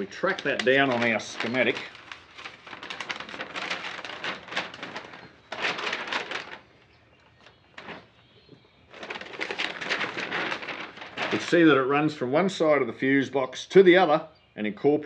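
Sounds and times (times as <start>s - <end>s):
paper rustling and crackling: 0.0s - 11.9s.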